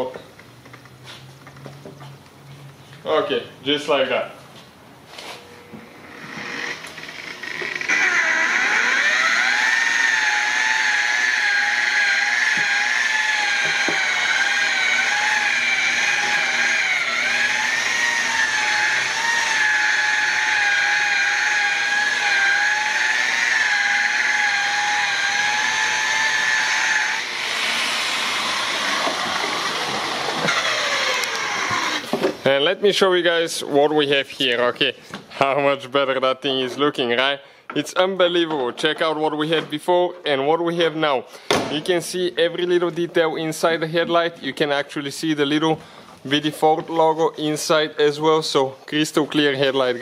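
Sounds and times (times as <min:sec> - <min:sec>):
electric polisher whine: 0:05.6 - 0:32.2.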